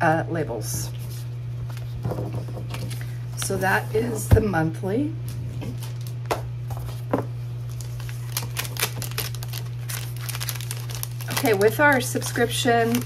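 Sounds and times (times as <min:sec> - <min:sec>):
steady low hum: 0:00.0 - 0:13.0
plastic sleeve clicks and crinkles: 0:07.7 - 0:13.0.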